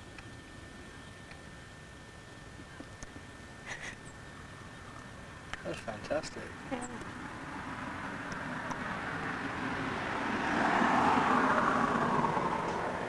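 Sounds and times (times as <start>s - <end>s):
motor vehicle passing: 6.8s - 13.0s.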